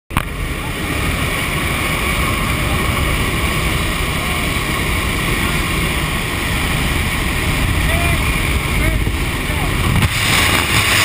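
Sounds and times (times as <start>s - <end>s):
aircraft engine noise: 0.1s - 11.0s
wind buffeting microphone: 0.2s - 11.0s
wind rushing: 7.3s - 11.0s.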